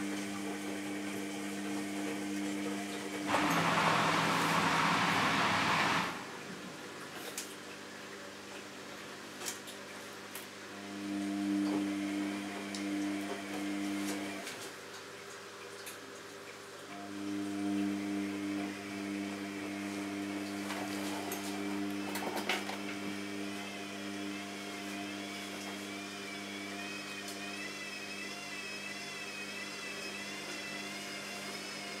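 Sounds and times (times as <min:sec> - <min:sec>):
small electric motor humming: 0:17.0 - 0:32.0.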